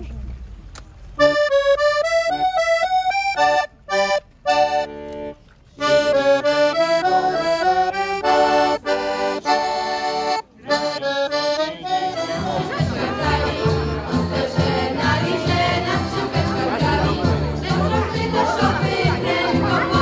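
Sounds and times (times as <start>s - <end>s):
piano accordion melody: 1.2s - 20.0s.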